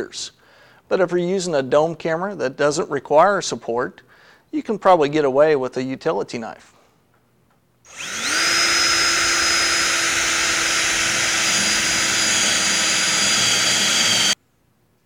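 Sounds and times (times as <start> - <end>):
cordless drill boring through tile: 7.9 - 14.4.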